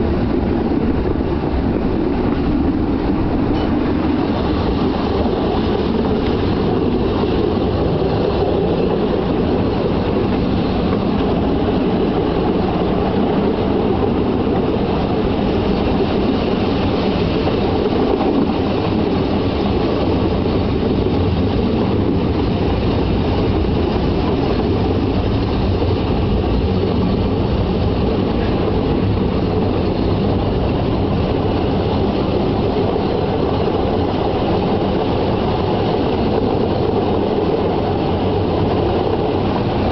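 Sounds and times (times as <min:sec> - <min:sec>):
train wheels rumbling on rails: 0:00.0 - 0:39.9.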